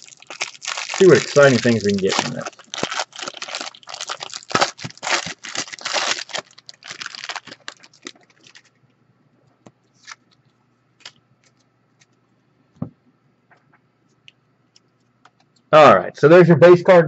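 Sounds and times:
plastic wrapper crinkling and tearing: 0.0s - 8.8s, 10.0s - 12.2s.

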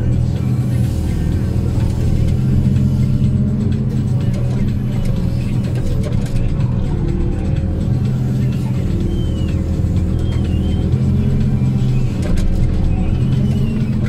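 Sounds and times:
diesel engine droning: 0.0s - 14.0s.

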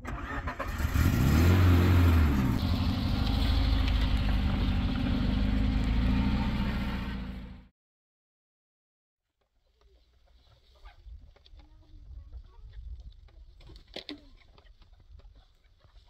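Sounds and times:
vehicle engine revving: 0.0s - 7.7s.

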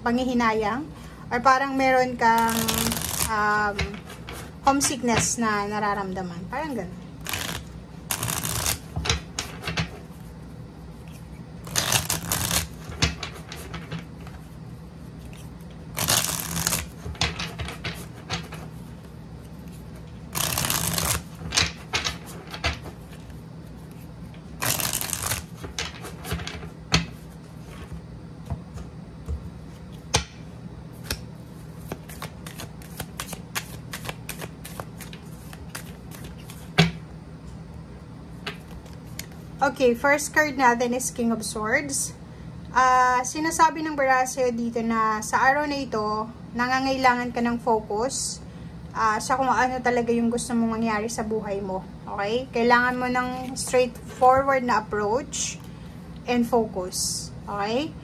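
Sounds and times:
cards flicking and tapping: 2.4s - 4.0s, 7.2s - 9.9s, 11.7s - 13.9s, 16.0s - 18.6s, 20.3s - 22.8s, 24.6s - 27.1s, 31.0s - 37.0s
cards riffle shuffled: 2.4s - 4.5s, 7.2s - 10.2s, 11.0s - 14.4s, 15.2s - 18.7s, 19.6s - 24.0s, 24.6s - 27.9s, 31.8s - 36.8s, 38.5s - 39.4s.

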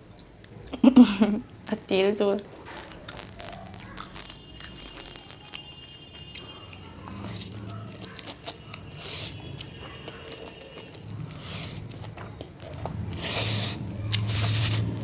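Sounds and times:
chewing: 2.7s - 15.0s.

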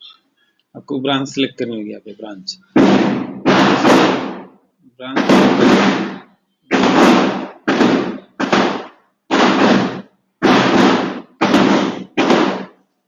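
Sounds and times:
firecrackers banging with echo: 2.6s - 4.6s, 5.2s - 12.8s.

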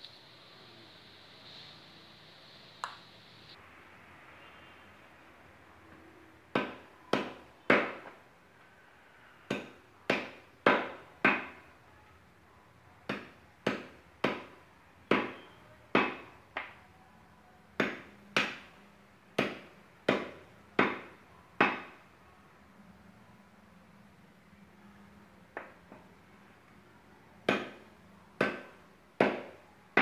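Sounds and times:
cleaver chopping meat and bone: 16.0s - 16.3s, 27.4s - 27.8s, 28.4s - 30.0s.

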